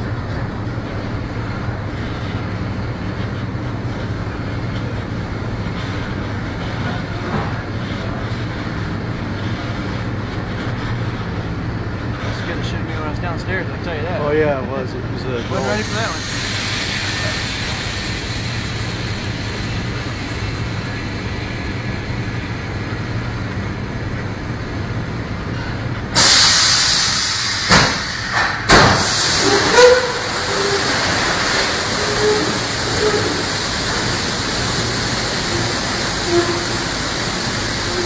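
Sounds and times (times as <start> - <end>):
machinery hum: 14.8 - 26.2
rush of coal dumping: 15.5 - 24.0, 26.1 - 38.0.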